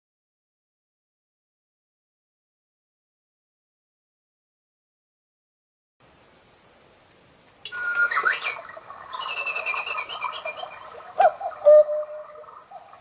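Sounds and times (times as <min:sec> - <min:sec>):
clockwork whirring and clicking: 0:07.7 - 0:11.7
cuckoo clock two-note call: 0:11.2 - 0:12.5.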